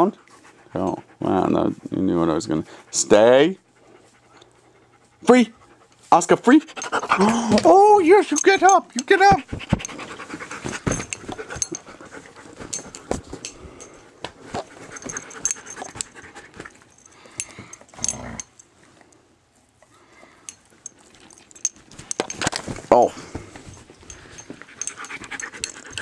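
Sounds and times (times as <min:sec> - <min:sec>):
dog panting: 0:00.0 - 0:07.4, 0:09.3 - 0:17.8, 0:24.0 - 0:26.0.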